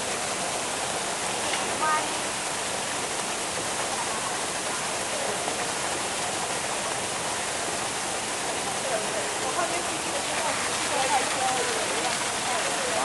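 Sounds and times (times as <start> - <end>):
running water hiss: 0.0 - 13.0.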